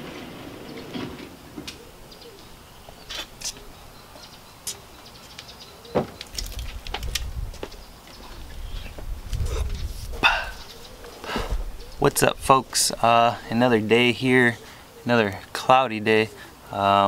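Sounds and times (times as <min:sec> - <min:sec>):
bird chirps: 0:01.8 - 0:06.7, 0:10.4 - 0:12.3.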